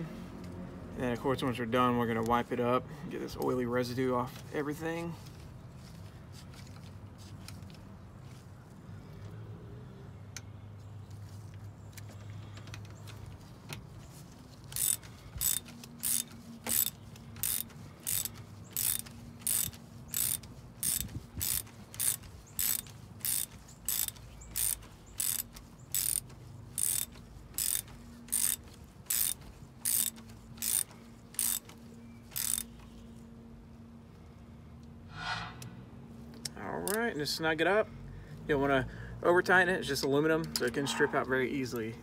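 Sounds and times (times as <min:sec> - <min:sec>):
hand ratchet clicking: 0:14.6 - 0:32.8.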